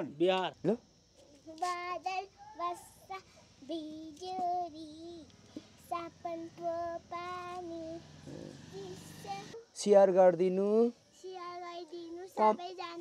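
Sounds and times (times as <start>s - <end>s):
child singing: 1.3s - 9.7s, 11.1s - 13.0s.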